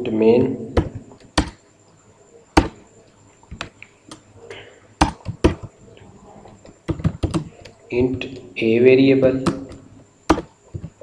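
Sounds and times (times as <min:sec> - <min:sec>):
computer keyboard keystrokes: 0:06.9 - 0:07.8, 0:09.4 - 0:10.9.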